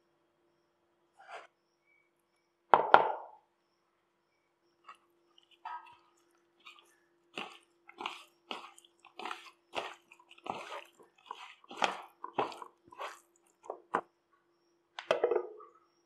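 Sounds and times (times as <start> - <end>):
hand squelching raw chicken: 4.8 - 14.0.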